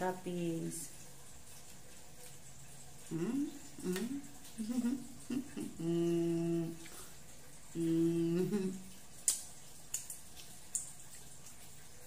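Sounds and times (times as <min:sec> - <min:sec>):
woman humming while eating: 0:03.1 - 0:07.0, 0:07.7 - 0:08.9.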